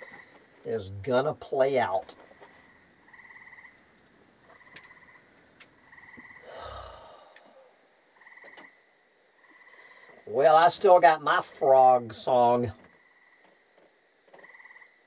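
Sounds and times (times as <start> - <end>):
frogs trilling: 2.4 - 11.8, 12.4 - 15.0.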